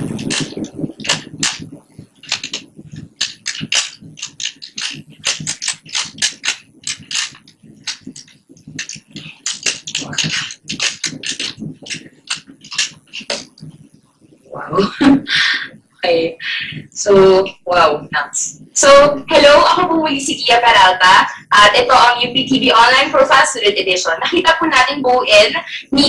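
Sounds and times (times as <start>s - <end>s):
plastic puzzle cube clicking: 3.2s - 8.0s.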